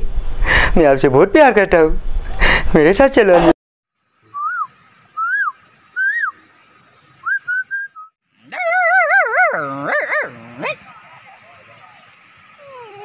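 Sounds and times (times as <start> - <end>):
man whistling animal call: 4.3 - 6.5, 7.2 - 8.1
man imitating dog whimpering: 8.5 - 10.1, 12.6 - 13.0.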